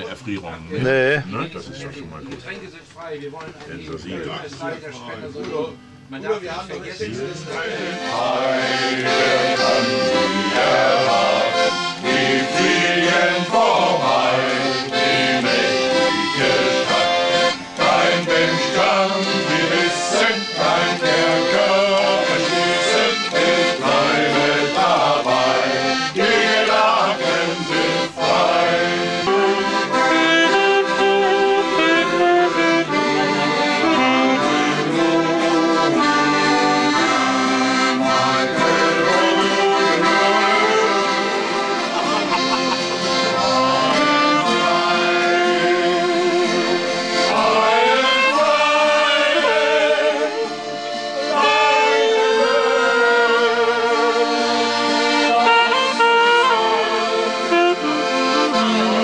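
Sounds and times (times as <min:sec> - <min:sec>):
piano accordion playing: 0:03.9 - 0:59.0
men singing: 0:07.0 - 0:30.6, 0:34.4 - 0:50.7, 0:51.3 - 0:55.8.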